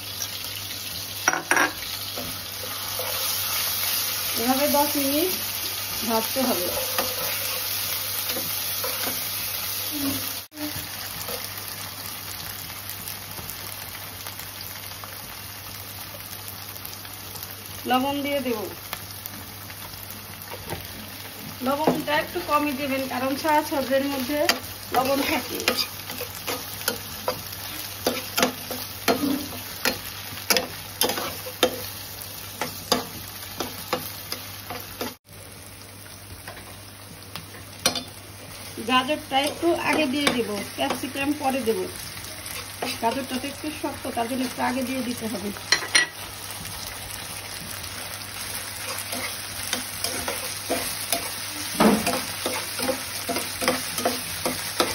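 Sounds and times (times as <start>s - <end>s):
chicken sizzling in oil: 0.0s - 54.9s
spatula scraping pan: 6.4s - 9.5s, 24.4s - 32.0s, 42.4s - 43.4s, 48.8s - 54.9s.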